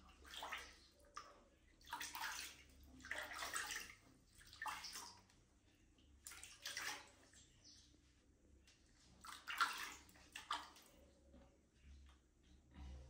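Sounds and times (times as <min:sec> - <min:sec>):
bath water splashing: 0:00.0 - 0:05.3, 0:06.2 - 0:07.4, 0:09.1 - 0:11.0.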